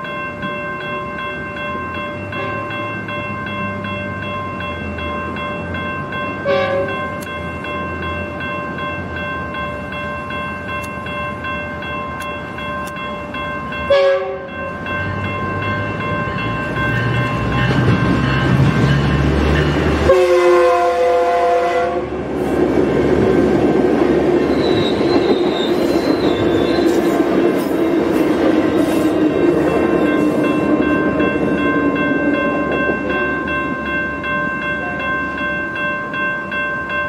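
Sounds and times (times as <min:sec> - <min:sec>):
train horn blasts: 0:06.4 - 0:07.0, 0:13.9 - 0:14.6, 0:20.0 - 0:22.2.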